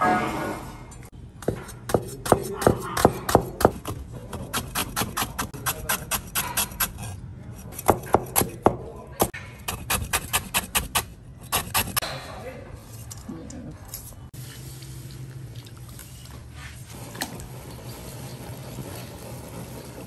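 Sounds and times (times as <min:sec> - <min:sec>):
knife chopping on cutting board: 0:01.4 - 0:07.0, 0:07.8 - 0:12.0.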